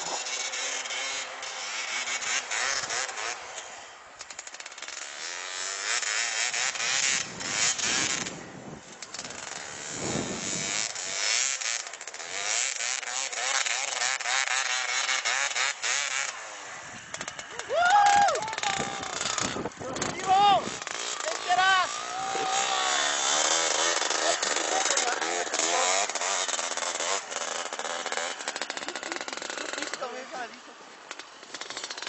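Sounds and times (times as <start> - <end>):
motorcycle engine revving: 0.0 - 32.0.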